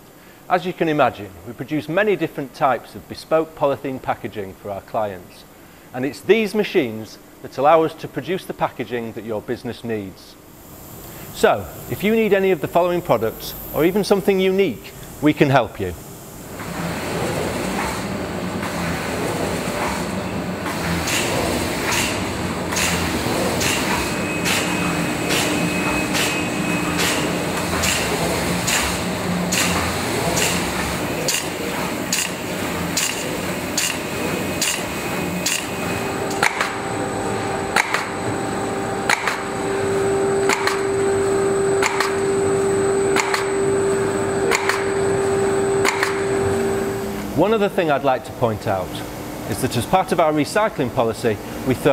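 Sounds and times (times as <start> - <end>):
mechanical hum: 0.0 - 51.9
steady machine whine: 10.4 - 47.9
machine clacking: 16.5 - 36.9, 37.6 - 38.2, 39.0 - 39.6, 40.4 - 41.0, 41.8 - 42.3, 43.1 - 43.6, 44.5 - 45.0, 45.8 - 46.4.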